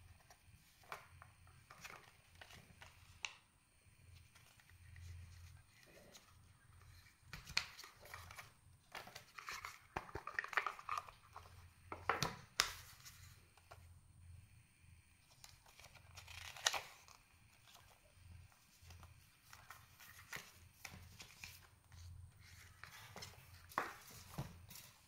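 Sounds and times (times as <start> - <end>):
paper leaflets rustling: 15.3 - 21.7.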